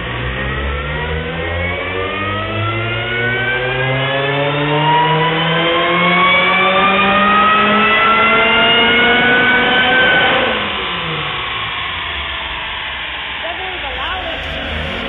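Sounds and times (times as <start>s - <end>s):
car engine revving: 13.8s - 15.0s.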